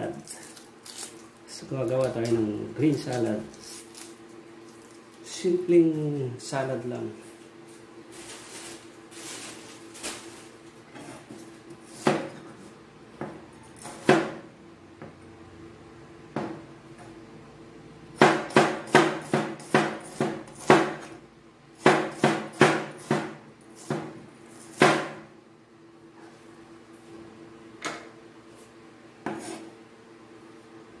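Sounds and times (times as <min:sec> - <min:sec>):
cleaver chopping on plastic board: 0:18.2 - 0:21.1, 0:21.8 - 0:24.1, 0:24.8 - 0:25.2.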